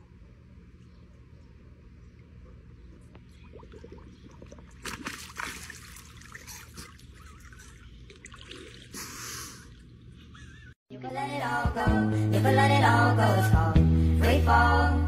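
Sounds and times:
pool water splashing and dripping: 0:02.2 - 0:10.0.

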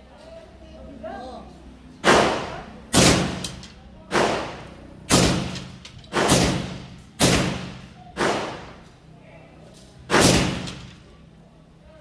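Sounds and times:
rifle shots echoing: 0:02.0 - 0:08.8, 0:10.1 - 0:10.9.

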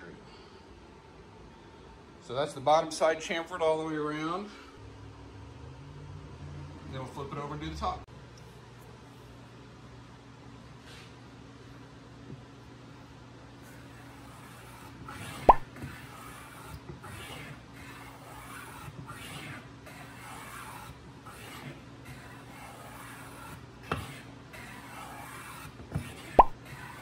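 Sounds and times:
hand plane rasping on wood: 0:13.9 - 0:27.0.

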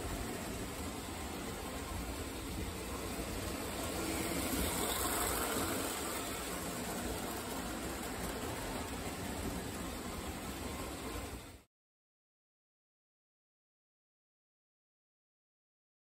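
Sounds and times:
toy electric train rumbling: 0:00.0 - 0:11.7.

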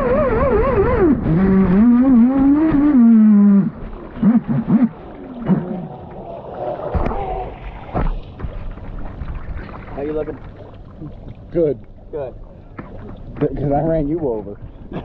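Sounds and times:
rc boat electric motor whining: 0:00.0 - 0:04.9.

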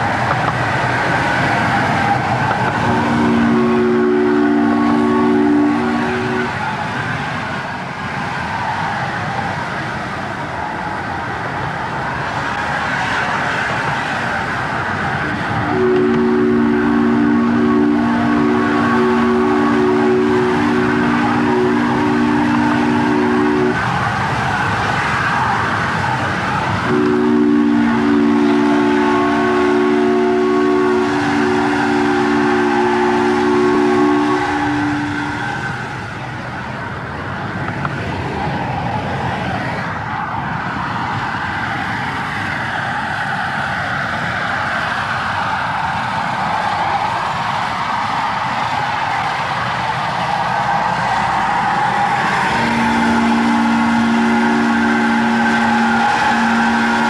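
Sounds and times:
locomotive steam and running noise: 0:00.0 - 0:57.0
steam locomotive chime whistle: 0:01.9 - 0:06.8, 0:15.3 - 0:26.0, 0:26.8 - 0:36.1, 0:50.2 - 0:57.0.

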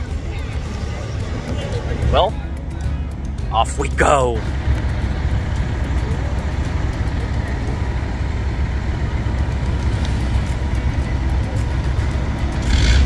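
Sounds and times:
road and wind noise: 0:00.0 - 0:13.0
vehicle rumble: 0:00.0 - 0:13.0.

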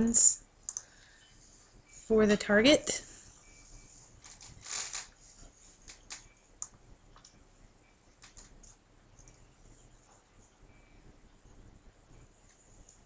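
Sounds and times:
computer mouse clicks: 0:00.6 - 0:00.9
soft rustle: 0:03.1 - 0:06.4.

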